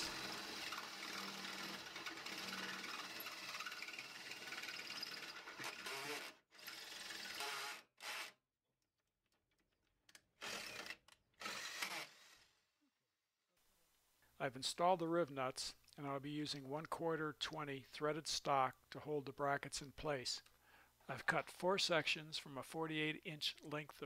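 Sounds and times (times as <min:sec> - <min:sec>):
cordless drill drilling steel: 0:00.0 - 0:08.3, 0:10.4 - 0:12.6.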